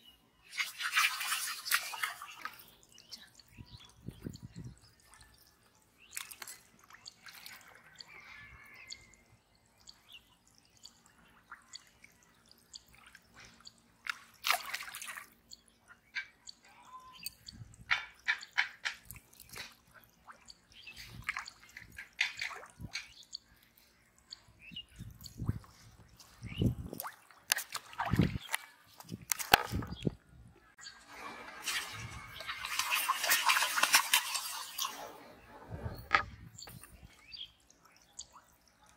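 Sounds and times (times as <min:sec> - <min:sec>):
wet squelching: 0:00.4 - 0:03.4, 0:09.8 - 0:15.4, 0:17.2 - 0:30.0, 0:31.6 - 0:35.2
water splashing and dripping: 0:00.4 - 0:30.2, 0:30.8 - 0:38.9.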